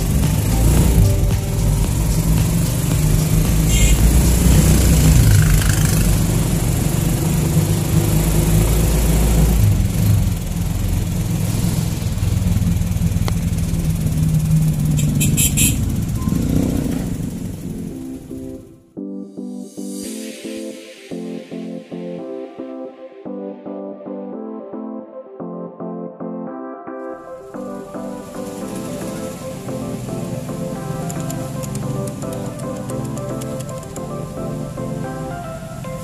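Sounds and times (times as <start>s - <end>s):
small motorcycle engine running: 0.0s - 18.6s
road noise: 0.0s - 18.8s, 27.6s - 36.0s.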